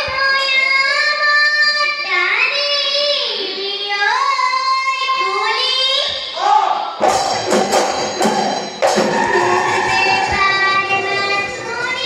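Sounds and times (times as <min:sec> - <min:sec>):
girl singing in high voice: 0:00.0 - 0:06.4, 0:09.4 - 0:12.0.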